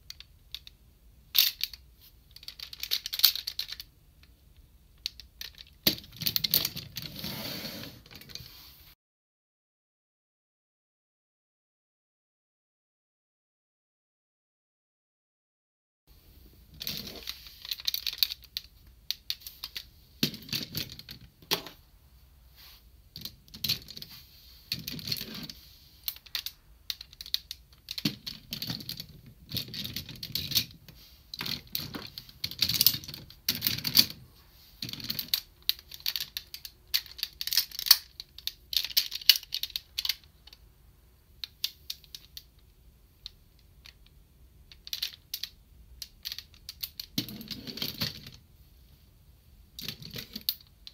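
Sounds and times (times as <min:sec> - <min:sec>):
plastic toy parts clicking and snapping: 0:00.1 - 0:07.0, 0:16.8 - 0:21.8, 0:23.1 - 0:24.1, 0:24.7 - 0:34.2, 0:34.8 - 0:40.6, 0:41.4 - 0:48.4, 0:49.8 - 0:50.9.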